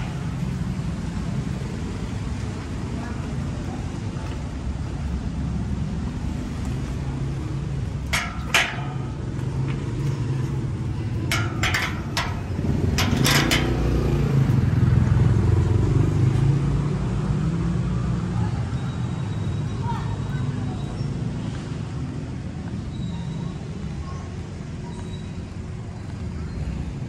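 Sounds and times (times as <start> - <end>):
vehicle traffic rumble: 0.0 - 27.0
metal gate clanking: 8.1 - 9.4, 11.0 - 14.3
metallic latch clicks: 11.3 - 14.0.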